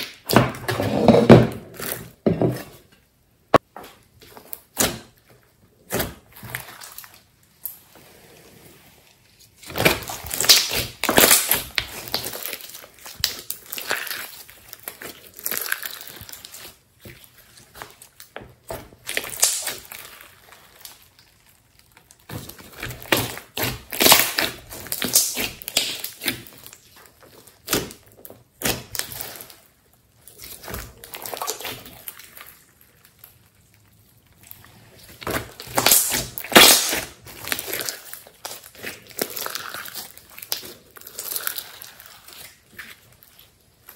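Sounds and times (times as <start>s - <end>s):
slime squishing and popping: 0.0s - 0.7s, 9.6s - 43.9s.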